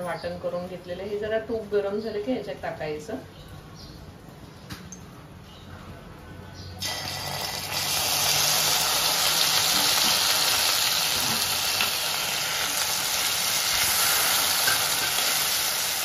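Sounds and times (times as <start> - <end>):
paste sizzling in hot fat: 6.8 - 16.0.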